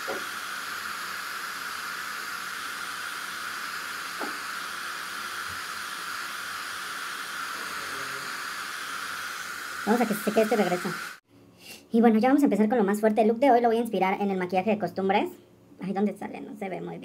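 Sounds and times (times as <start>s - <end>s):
steady hiss: 0.0s - 11.2s.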